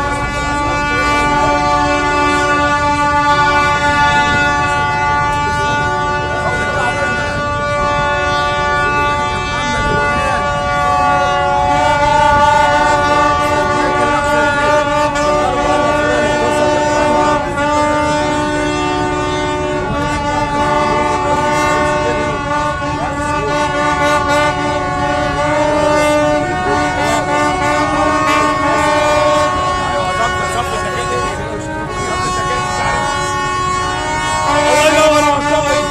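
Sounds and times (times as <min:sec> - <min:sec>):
ships' horns blasting: 0:00.0 - 0:35.9.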